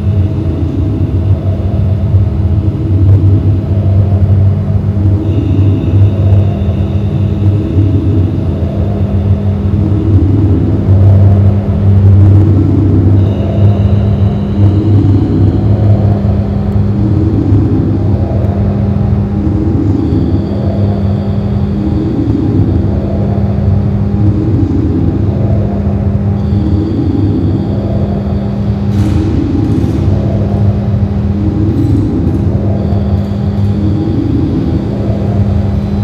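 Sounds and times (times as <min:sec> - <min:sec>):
electronic drone through loudspeaker: 0:00.0 - 0:36.0.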